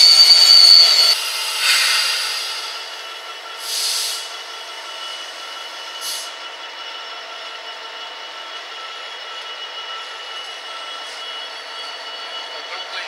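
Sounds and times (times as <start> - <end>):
diesel locomotive running: 0.0 - 13.0
air hiss: 1.2 - 2.9, 3.6 - 4.3.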